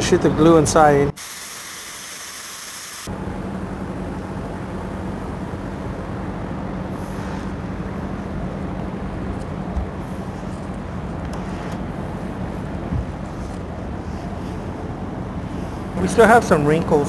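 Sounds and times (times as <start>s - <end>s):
steady low hum: 0.0s - 17.0s
spray glue gun hissing: 1.2s - 3.1s.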